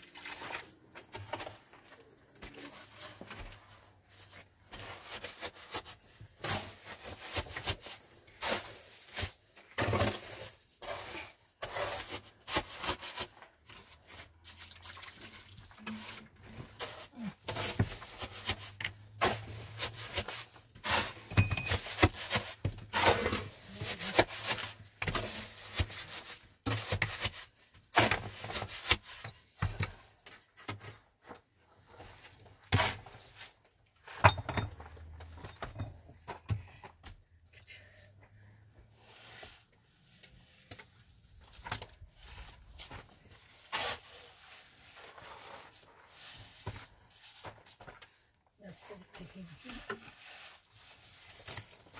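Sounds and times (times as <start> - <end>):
hard objects clinking and scraping: 15.7 - 27.4.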